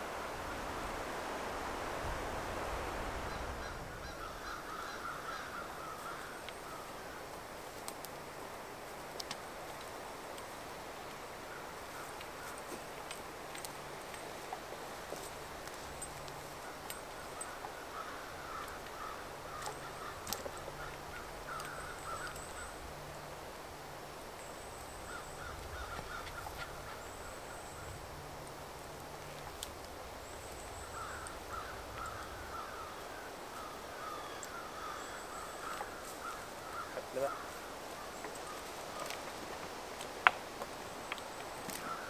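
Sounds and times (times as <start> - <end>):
crow-like bird calls: 3.3 - 7.2, 16.6 - 22.8, 24.9 - 27.9, 30.5 - 39.3, 41.8 - 42.0
twigs clicking underfoot: 4.4 - 23.2, 24.2 - 32.9, 34.3 - 42.0.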